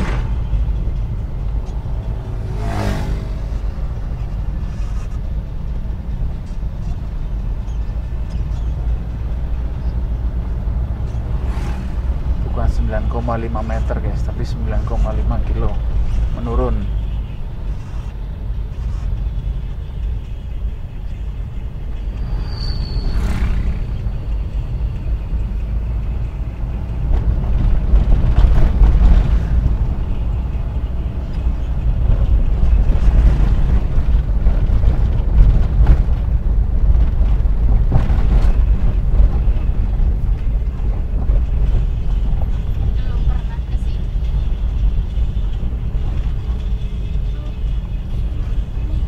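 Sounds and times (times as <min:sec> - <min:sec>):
engine and road rumble: 0:00.0 - 0:49.0
brief high squeak: 0:22.1 - 0:24.0.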